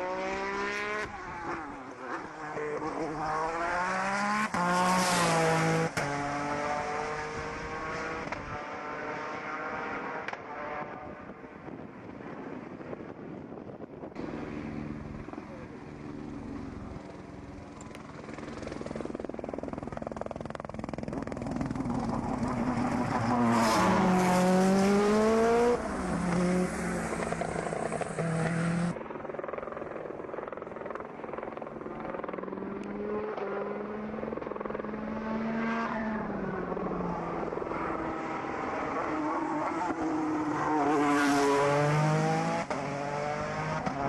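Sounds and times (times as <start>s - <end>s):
race car engine revving: 21.5s - 29.0s.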